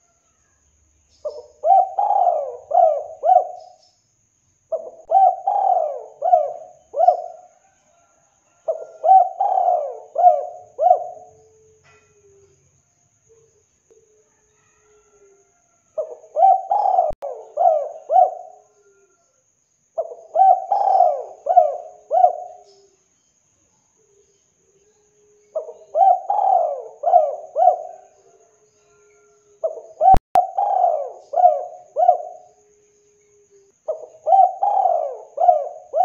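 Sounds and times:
dove cooing: 1.2 - 3.8, 4.7 - 12.5, 16.0 - 19.2, 20.0 - 22.9, 25.4 - 32.7, 33.3 - 36.0.

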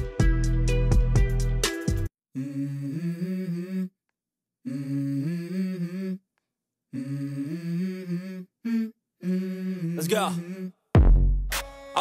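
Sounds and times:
hummed vocal melody: 2.3 - 4.0, 4.6 - 6.3, 6.9 - 10.9.

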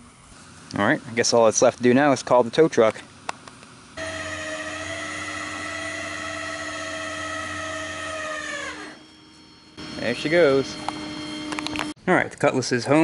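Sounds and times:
hydraulic winch whining: 4.0 - 12.0.

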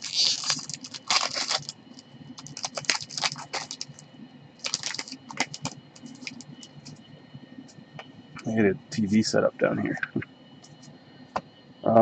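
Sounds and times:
foil wrapper crinkling: 0.0 - 4.0, 4.6 - 7.0.

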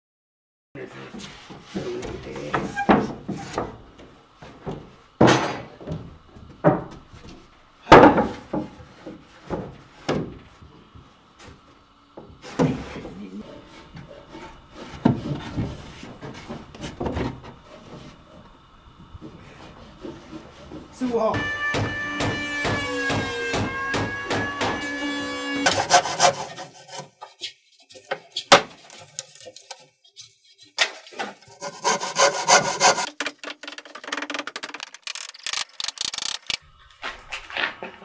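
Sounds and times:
wooden knocks and bangs: 4.5 - 7.3.

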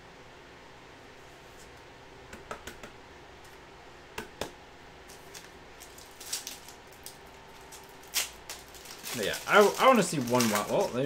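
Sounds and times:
foil pack crinkling: 5.1 - 11.0
foil pack tearing open: 5.2 - 11.0.

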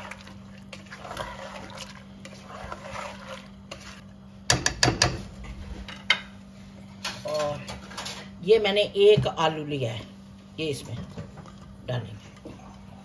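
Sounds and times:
spatula stirring wet food in pot: 0.0 - 4.8
spatula knocking on metal pot: 4.5 - 5.2.

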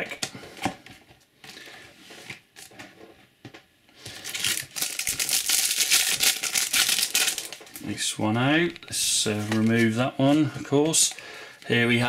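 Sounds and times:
cards rustling: 4.0 - 7.9, 8.8 - 11.8.

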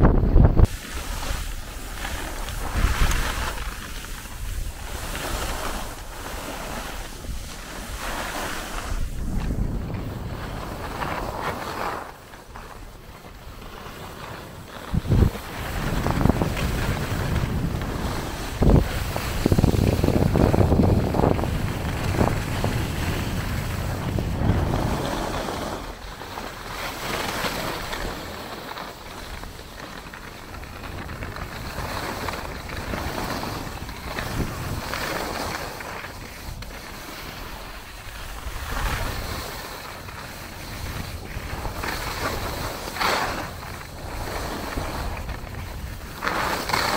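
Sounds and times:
wind buffeting microphone: 0.0 - 46.9
skis scraping on packed snow: 0.6 - 46.9.

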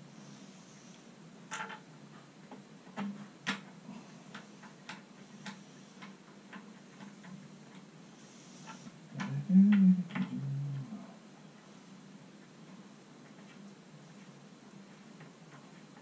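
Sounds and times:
steady low hum: 3.8 - 16.0.

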